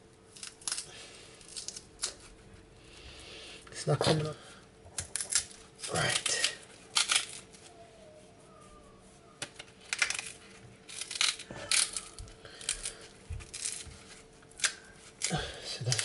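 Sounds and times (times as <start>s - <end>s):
plantain skin scraping and tearing: 0.3s - 2.5s, 5.0s - 7.8s, 9.8s - 16.0s.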